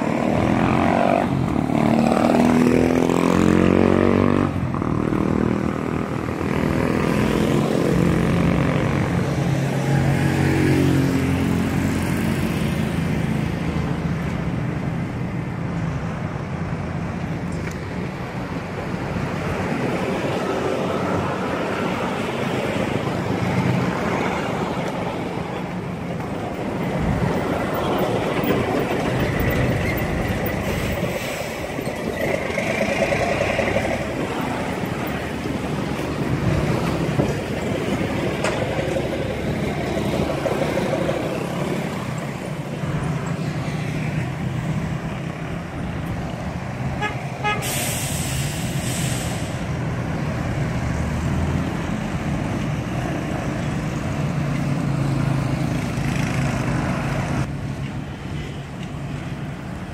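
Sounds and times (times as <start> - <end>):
road and wind noise: 0.0 - 59.9
traffic: 0.0 - 59.9
vehicle horn: 47.0 - 47.8
hiss burst: 47.6 - 49.7.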